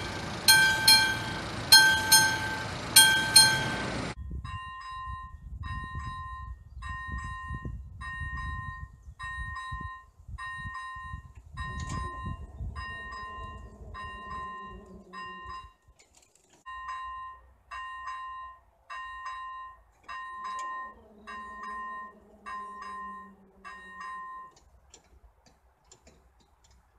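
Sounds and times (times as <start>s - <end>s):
low motor hum: 0.0s - 4.2s, 11.8s - 15.6s, 20.8s - 24.2s
electronic level-crossing bell: 0.0s - 15.8s, 16.7s - 24.6s.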